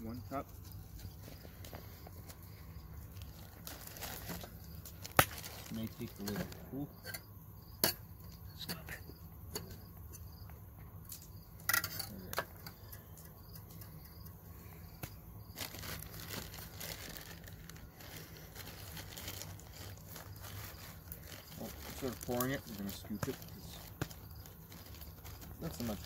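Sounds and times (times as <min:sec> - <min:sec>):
paper bag crinkling: 0:01.1 - 0:06.7, 0:15.5 - 0:26.0.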